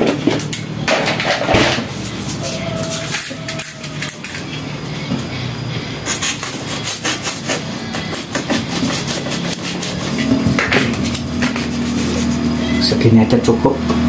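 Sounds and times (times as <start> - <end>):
cardboard being cut and torn: 6.0 - 12.6.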